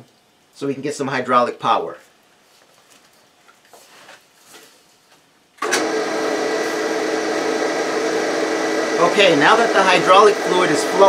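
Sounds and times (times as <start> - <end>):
faint handling sounds: 1.9 - 5.3
hydraulic pump motor whining: 5.6 - 11.0.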